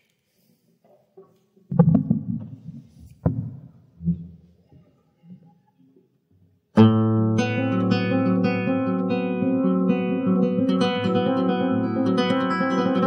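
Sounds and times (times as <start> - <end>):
knocks on microphone stand: 3.2 - 3.7
classical guitar chord: 6.8 - 13.0.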